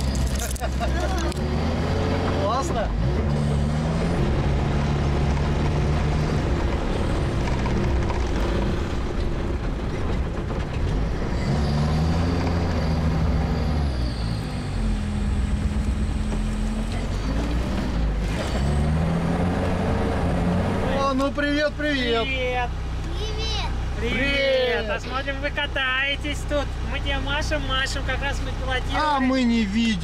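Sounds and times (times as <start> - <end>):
all-terrain vehicle engine running: 0.0 - 11.2.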